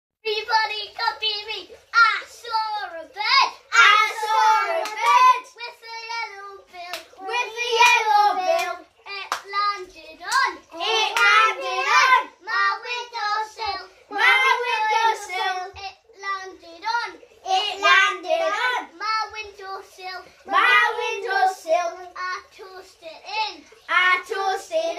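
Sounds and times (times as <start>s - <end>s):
children singing together: 3.6s - 24.9s.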